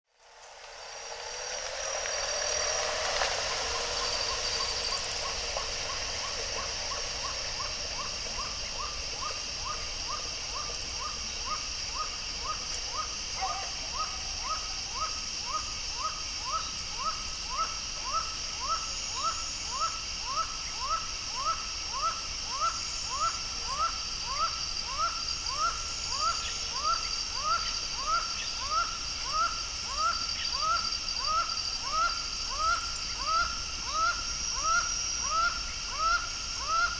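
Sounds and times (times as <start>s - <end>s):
falcon calling short rising notes: 0.3s - 11.2s.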